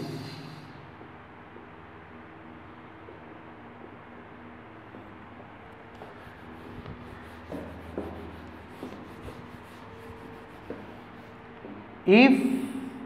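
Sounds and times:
eraser rubbing on whiteboard: 5.8s - 12.0s.

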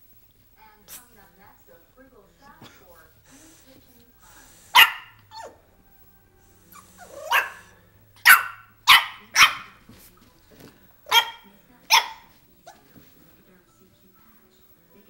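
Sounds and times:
puppy barking: 4.5s - 5.7s, 6.7s - 9.8s, 11.1s - 12.8s.

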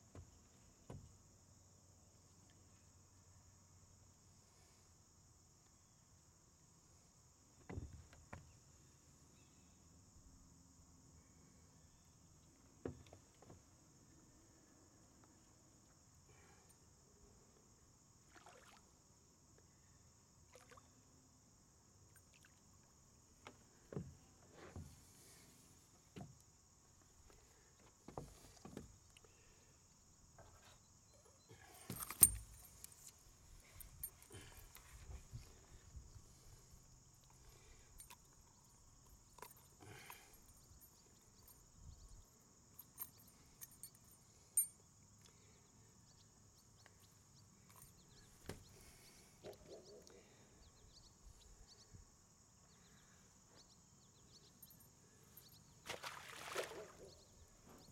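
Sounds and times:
crickets droning: 0.0s - 57.9s
fish splashing out of water: 55.9s - 57.0s.

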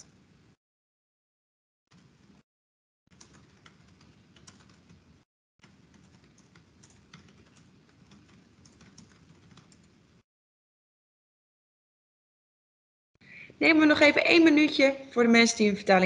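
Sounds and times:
typing on keyboard: 3.1s - 10.1s.

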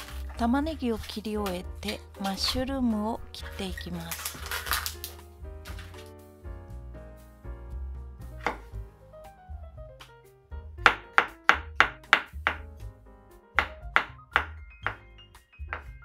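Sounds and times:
knife chopping on wooden board: 8.4s - 8.8s, 10.8s - 12.7s, 13.6s - 15.0s.

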